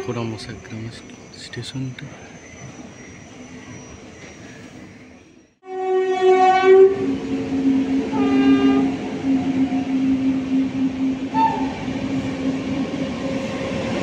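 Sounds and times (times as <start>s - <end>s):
faint outdoor background: 0.0s - 14.0s
locomotive humming: 0.0s - 14.0s
locomotive horn blasts: 5.6s - 11.8s.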